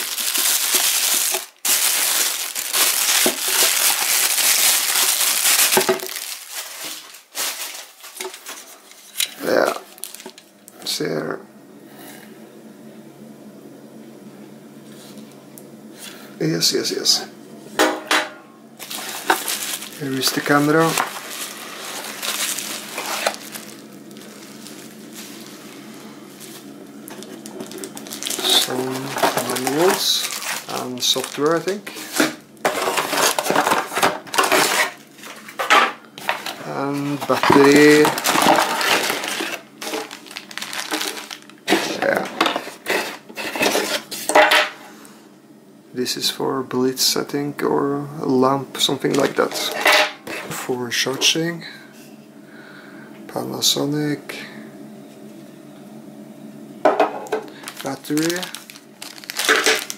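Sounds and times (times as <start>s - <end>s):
plastic wrapping crinkling: 0.0s - 10.5s, 18.8s - 44.3s, 57.3s - 59.9s.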